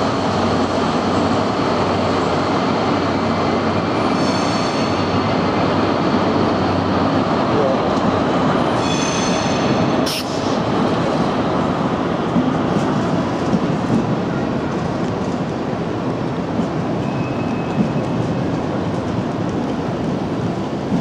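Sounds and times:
train wheels rumbling on rail: 0.0s - 21.0s
high squeal: 4.0s - 5.1s, 8.7s - 10.6s
sharp hiss: 10.0s - 10.6s.

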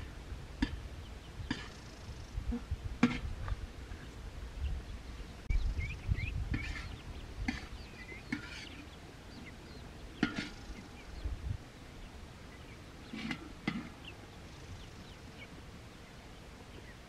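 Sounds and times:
ducklings peeping: 4.0s - 11.4s.

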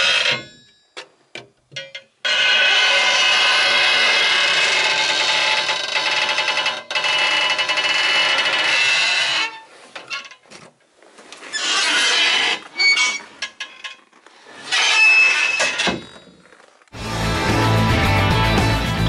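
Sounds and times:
door hinge creaking and squealing: 0.0s - 0.6s, 1.8s - 10.4s, 11.5s - 16.7s.

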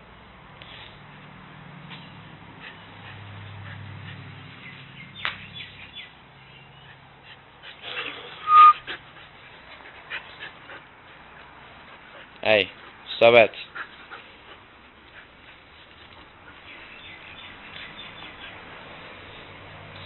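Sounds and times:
dogs playing: 0.6s - 20.0s
dog yipping: 8.4s - 8.8s.

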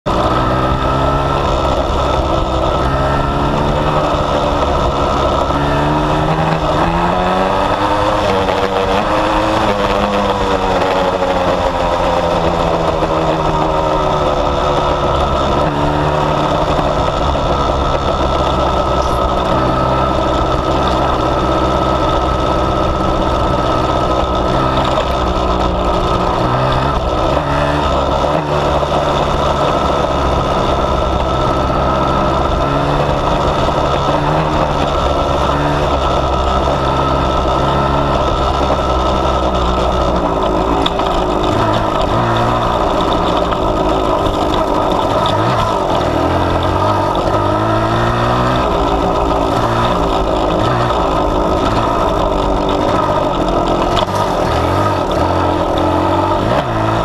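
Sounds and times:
two-stroke motorcycle engine revving: 0.0s - 57.0s.

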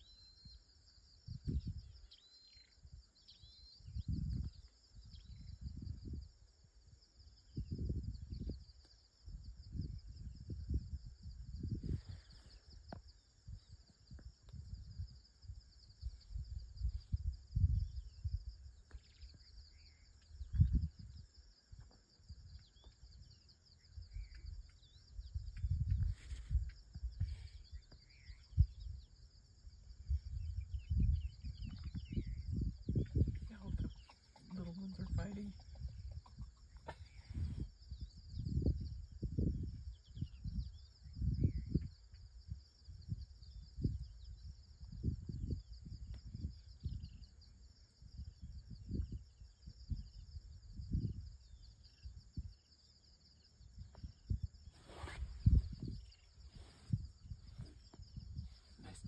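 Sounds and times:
faint bird chirps: 0.0s - 59.0s
insect chirring: 0.0s - 59.0s
wind buffeting microphone: 1.0s - 2.1s, 3.7s - 59.0s
birds chirping: 30.3s - 38.2s
rumbling on microphone: 53.8s - 59.0s.

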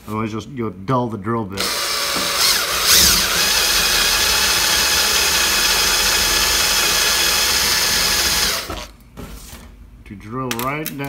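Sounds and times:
power drill boring into metal: 1.6s - 8.9s.

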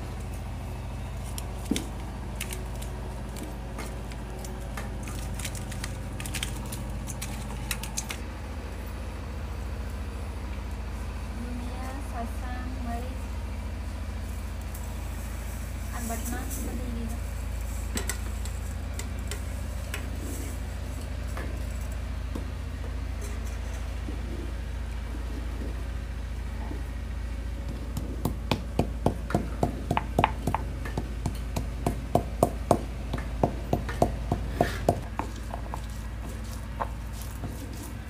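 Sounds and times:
steady low hum: 0.0s - 38.0s
grinding stone knocking on slab: 27.6s - 37.8s.

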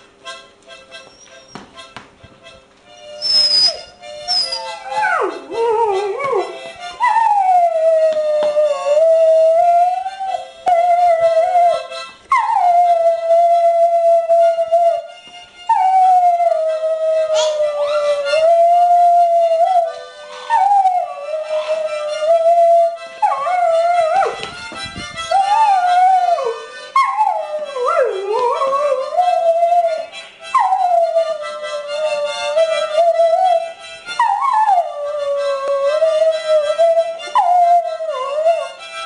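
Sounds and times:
harmonica tune: 0.0s - 39.0s
dog howling: 3.2s - 14.3s, 20.5s - 24.4s, 25.3s - 30.0s, 34.2s - 38.7s.

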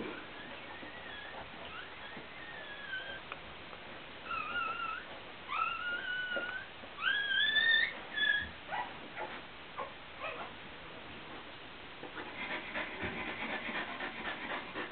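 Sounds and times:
dog whimpering: 0.0s - 3.3s, 4.2s - 10.6s.

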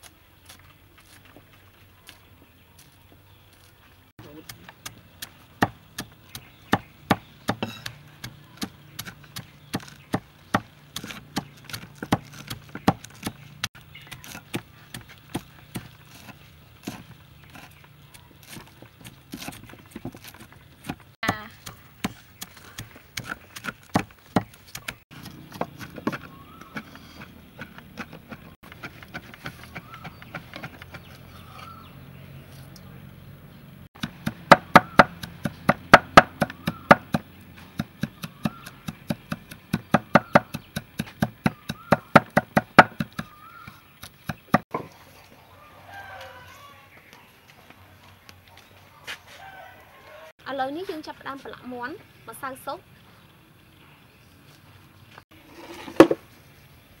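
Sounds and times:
cleaver chopping on wooden board: 4.4s - 13.4s, 34.0s - 44.8s.

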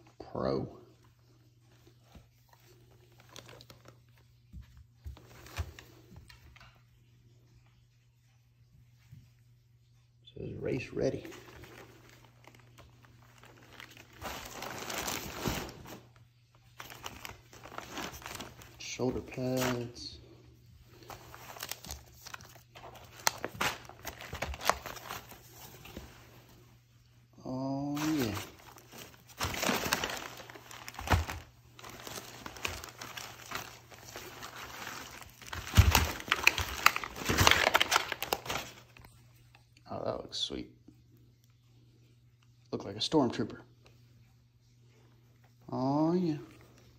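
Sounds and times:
plastic packaging crinkling: 2.5s - 4.2s, 11.0s - 20.1s, 20.8s - 26.3s, 27.8s - 39.1s.

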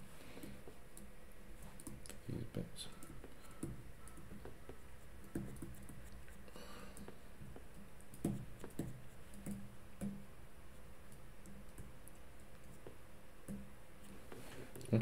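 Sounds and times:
low steady hum: 0.0s - 15.0s
stylus tapping on screen: 3.0s - 6.2s, 7.0s - 10.2s.

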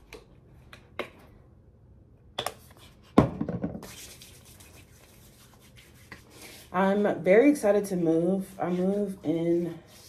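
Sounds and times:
hands rubbing together: 3.8s - 6.7s.

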